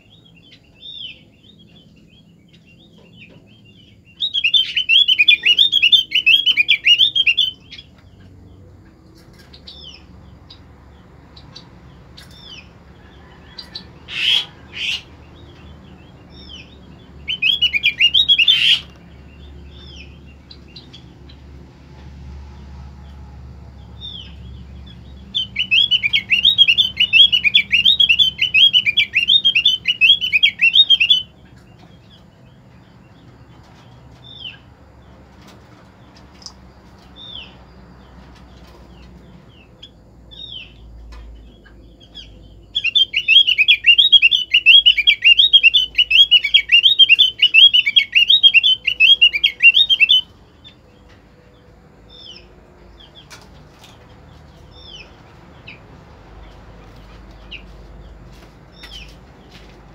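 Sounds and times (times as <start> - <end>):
bird chattering trills: 2.5 - 8.4, 13.5 - 21.1, 24.0 - 32.2, 41.6 - 50.9.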